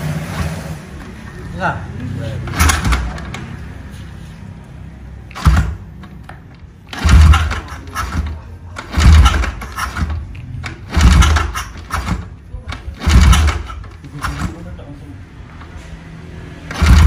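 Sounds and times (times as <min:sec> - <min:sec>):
motorcycle engine loud bursts: 0:05.3 - 0:05.9, 0:06.9 - 0:10.2, 0:10.8 - 0:12.3, 0:13.0 - 0:14.6, 0:16.6 - 0:17.0.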